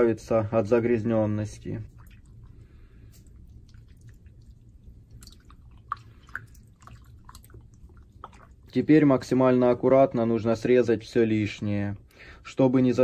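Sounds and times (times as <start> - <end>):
wet squelching of meat in water: 1.5 - 9.5.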